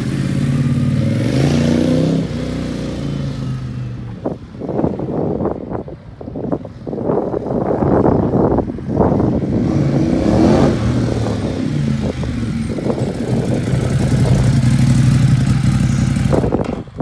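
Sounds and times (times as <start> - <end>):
motorcycle engine passing close: 0.0 - 4.1, 8.9 - 17.0.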